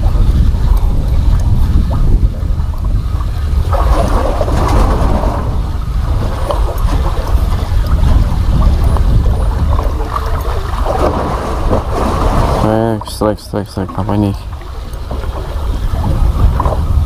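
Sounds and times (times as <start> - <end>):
rough rushing noise: 0.0 - 13.0
wind rumbling on microphone: 0.0 - 17.0.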